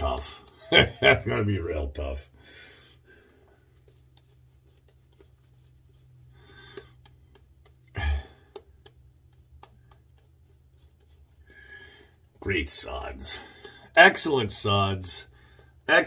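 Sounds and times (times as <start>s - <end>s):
shaving brush scratching on stubble: 3.6s - 6.3s.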